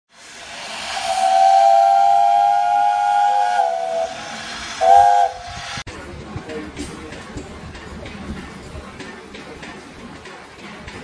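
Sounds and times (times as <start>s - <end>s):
steam hissing: 0.1s - 5.9s
steam whistle blowing: 0.4s - 5.8s.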